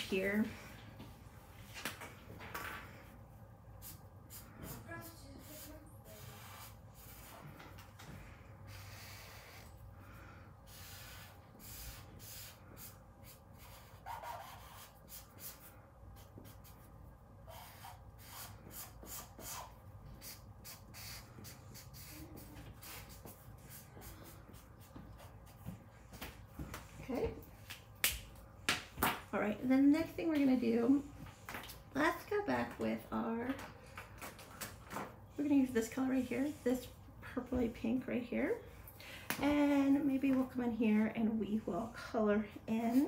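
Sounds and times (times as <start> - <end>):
marker scratching on paper: 3.8 - 7.8, 8.7 - 9.8, 10.7 - 25.6.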